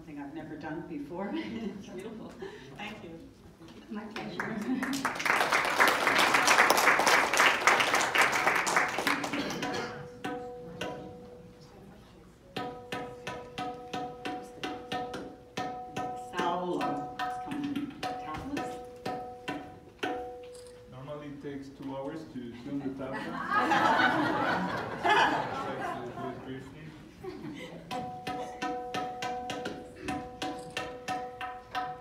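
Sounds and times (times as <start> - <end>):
audience applause: 4.4 - 9.6
tabla strokes: 16.8 - 20.5, 28.0 - 32.0.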